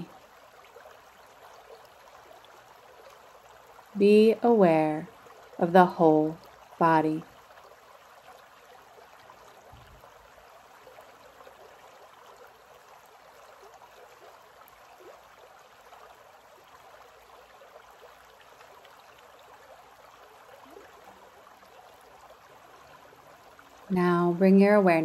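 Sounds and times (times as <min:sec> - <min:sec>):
creek babbling over rocks: 0:00.0 - 0:25.0.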